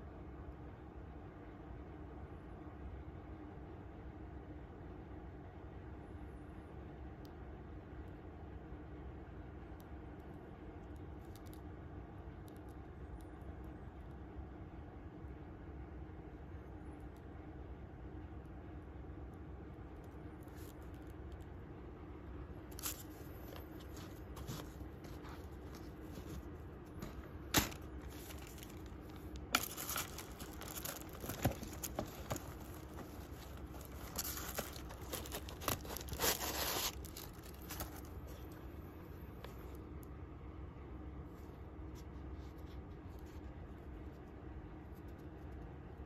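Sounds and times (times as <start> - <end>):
steady low hum: 0.0 - 46.0
tissue paper crinkling: 22.7 - 38.6.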